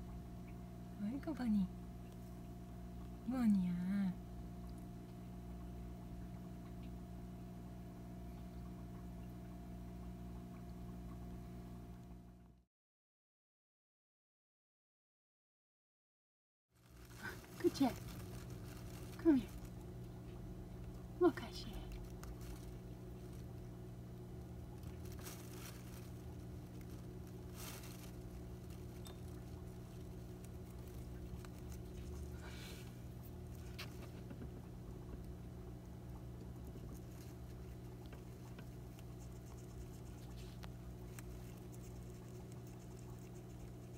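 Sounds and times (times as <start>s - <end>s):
low background hum: 0.0s - 12.7s, 16.8s - 43.9s
faint small ticks: 2.0s - 3.2s, 4.5s - 12.3s, 24.3s - 43.9s
rustles and scrapes in cage: 24.8s - 34.4s, 36.7s - 43.9s.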